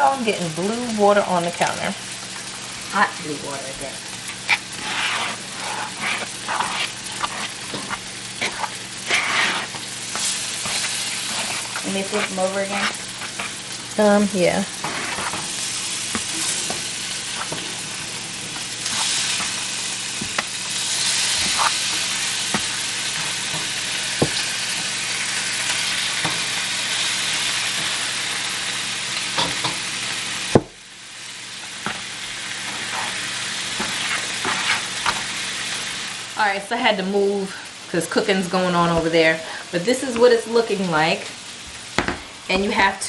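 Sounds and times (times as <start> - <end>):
sizzling hiss from cooking: 0.0 - 43.0
metal spoon stirring in a bowl: 4.5 - 13.6.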